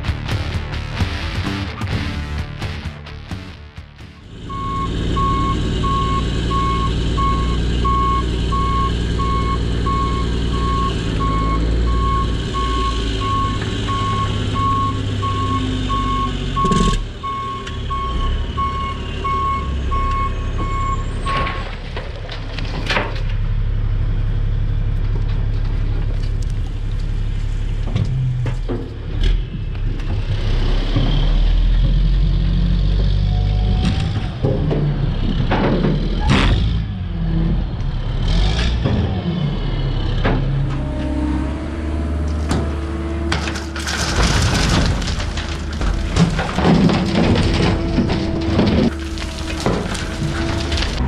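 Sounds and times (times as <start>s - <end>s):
diesel truck engine running: 0.0s - 51.0s
reverse alarm beeping: 4.4s - 21.6s.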